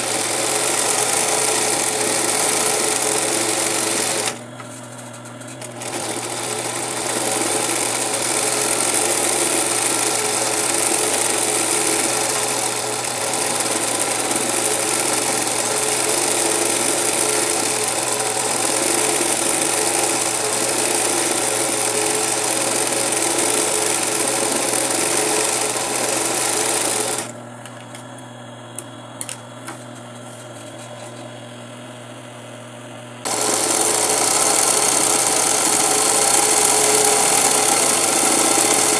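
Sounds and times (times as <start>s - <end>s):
sewing machine sewing: 0.0s - 27.4s, 33.2s - 38.9s
machine humming: 24.1s - 38.9s.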